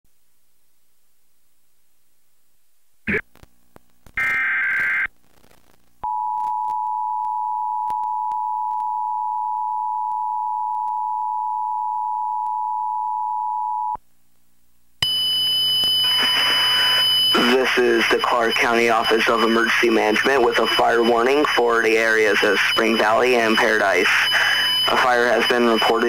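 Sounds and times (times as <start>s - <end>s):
buzzy data burst: 4.2s - 5.7s
noisy sound with high tones: 15.0s - 26.0s.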